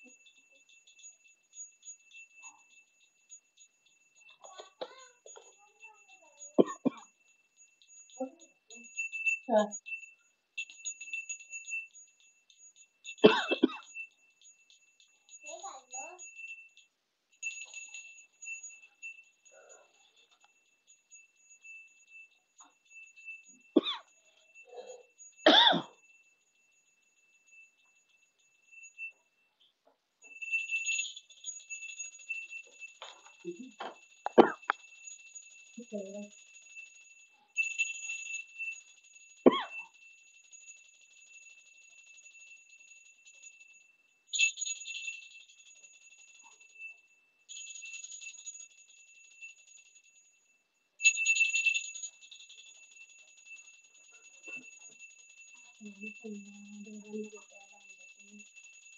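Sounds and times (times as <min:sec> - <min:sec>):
small bell ringing: 0:00.0 - 0:58.9
person coughing: 0:06.6 - 0:07.0, 0:13.3 - 0:13.8, 0:23.8 - 0:24.0, 0:25.5 - 0:25.9, 0:34.4 - 0:34.6, 0:39.5 - 0:39.8.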